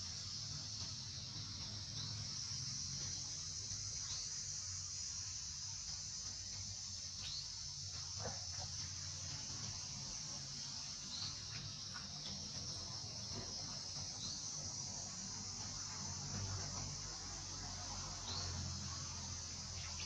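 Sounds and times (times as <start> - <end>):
insects buzzing: 0.0 - 20.0.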